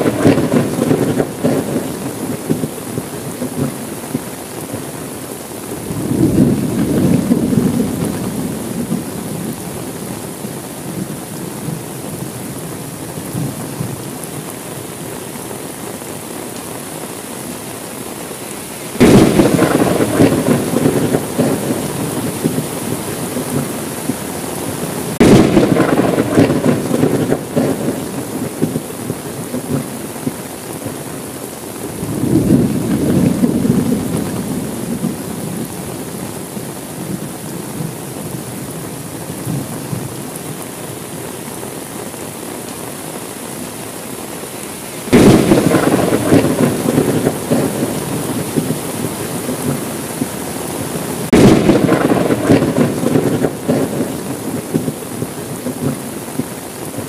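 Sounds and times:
thunderclap: 0:00.0 - 0:04.2, 0:05.9 - 0:09.6, 0:19.0 - 0:24.3, 0:25.1 - 0:30.0, 0:32.0 - 0:35.7, 0:45.1 - 0:50.3, 0:51.2 - 0:56.1
low thunder rumble: 0:00.0 - 0:04.3, 0:05.8 - 0:14.0, 0:19.0 - 0:31.0, 0:31.9 - 0:36.2, 0:45.1 - 0:56.5
steady rain: 0:00.0 - 0:57.0.

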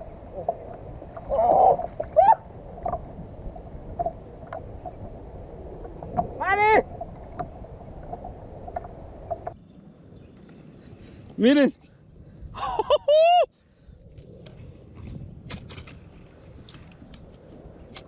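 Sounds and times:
water splashing: 0:00.0 - 0:09.6
wind: 0:00.0 - 0:18.0.

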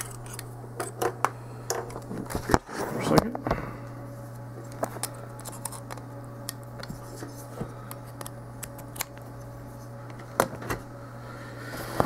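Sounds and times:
low electrical hum: 0:00.0 - 0:12.0
cables and connectors clicking: 0:07.9 - 0:09.5.

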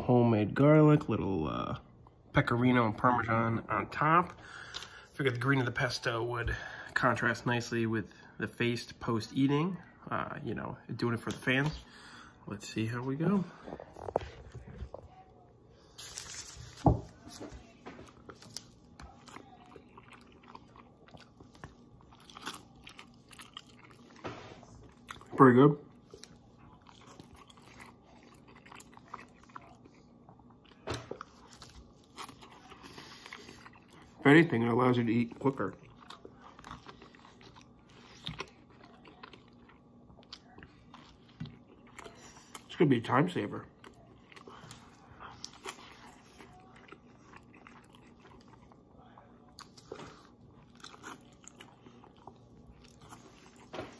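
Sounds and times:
chewing and wet mouth sounds: 0:13.2 - 0:53.9.

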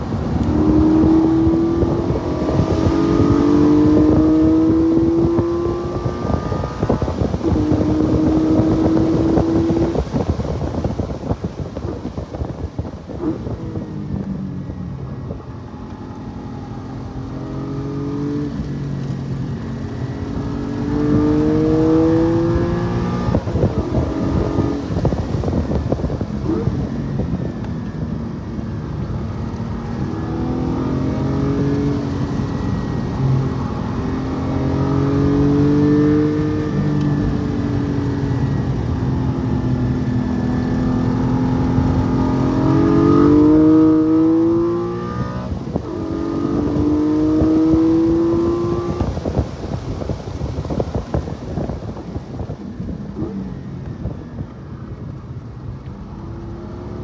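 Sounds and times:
car engine revving: 0:00.0 - 0:10.7, 0:14.6 - 0:27.0, 0:28.7 - 0:49.3
tyre and road noise: 0:00.0 - 0:57.0.

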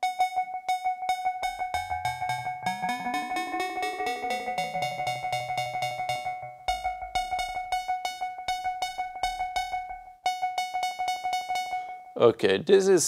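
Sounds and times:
fast repeating oscillator pattern: 0:00.7 - 0:12.0
steady high synth tone: 0:01.2 - 0:10.0
sliding synth tones: 0:01.4 - 0:10.0.

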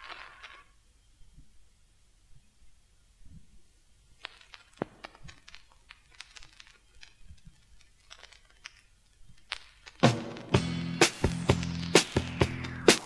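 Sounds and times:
vinyl crackles and pops: 0:00.0 - 0:00.8, 0:03.2 - 0:13.0.

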